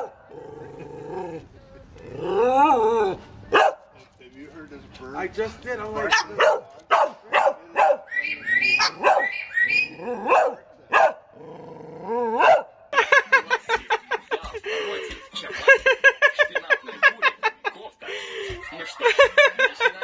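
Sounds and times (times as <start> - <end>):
dog barking: 3.5 - 3.9, 6.0 - 8.1, 8.8 - 9.4, 10.2 - 11.3, 12.3 - 12.8
cockatoo mimicking dog bark: 6.1 - 11.2.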